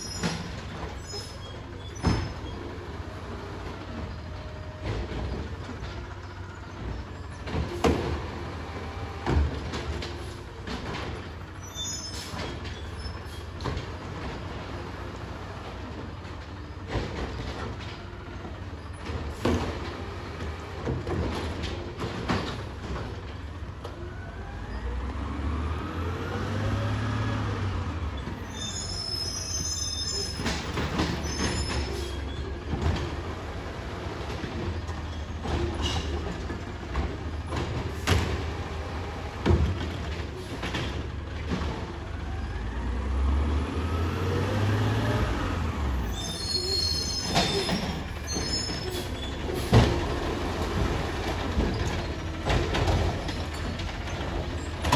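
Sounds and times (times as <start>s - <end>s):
carts clanking and banging: 0.0s - 24.0s, 26.1s - 43.1s, 44.1s - 54.9s
garbage truck engine revving: 18.4s - 29.0s, 30.2s - 54.9s
high squeal: 28.4s - 32.4s, 46.0s - 49.4s.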